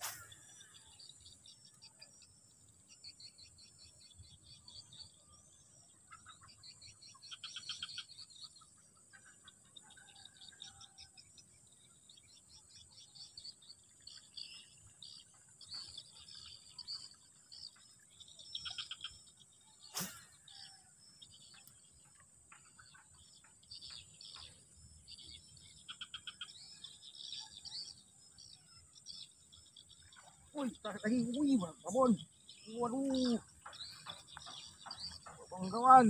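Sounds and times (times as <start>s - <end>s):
fishing rod swish: 0.0s - 0.3s
birds chirping: 11.7s - 36.0s.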